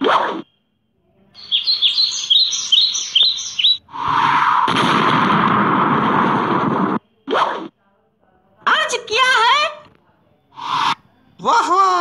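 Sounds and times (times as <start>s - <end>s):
cartoon tweeting birds: 1.4s - 4.4s, 10.6s - 11.0s.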